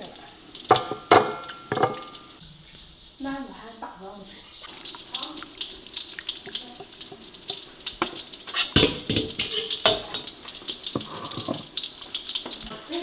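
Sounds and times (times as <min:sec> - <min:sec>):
ladle clinking against bowl: 0:00.7 - 0:02.3
thick sauce pouring and splashing: 0:04.6 - 0:13.0.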